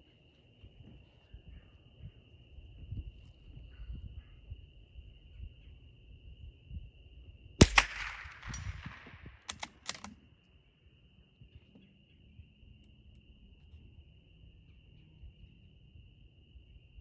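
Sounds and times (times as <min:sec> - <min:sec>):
rifle shot with echo: 0:07.6 - 0:10.1
rifle bolt clicks: 0:07.6 - 0:10.2.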